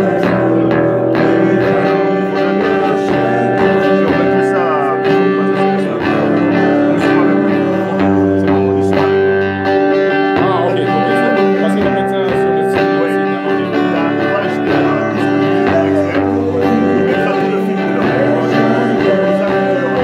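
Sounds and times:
man singing into microphone: 0.0s - 9.7s, 10.3s - 20.0s
guitar held chords: 0.0s - 20.0s.

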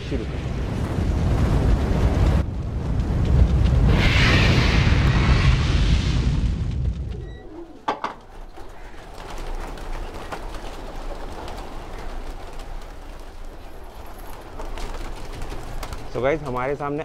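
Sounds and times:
pigeons cooing: 7.1s - 14.5s.

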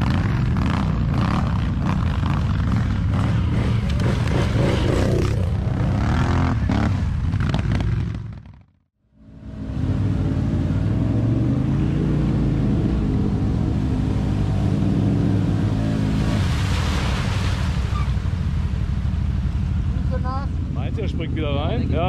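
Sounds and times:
quad engine revving: 0.0s - 8.2s
water splashing: 12.2s - 20.7s.

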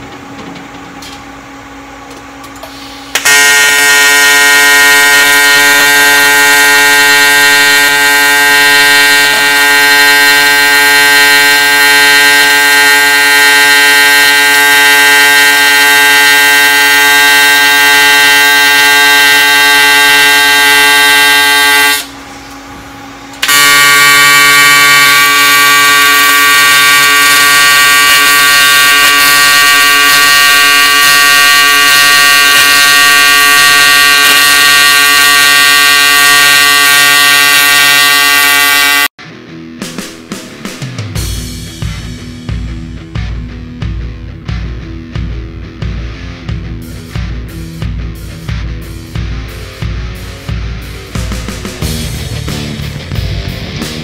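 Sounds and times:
welding arc buzzing: 3.1s - 39.1s.

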